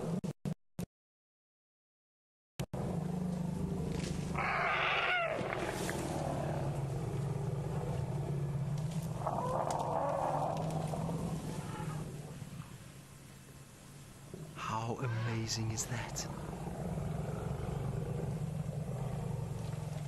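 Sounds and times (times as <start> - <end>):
steady low hum: 2.8 - 20.0
elephants calling: 3.6 - 12.8, 14.6 - 20.0.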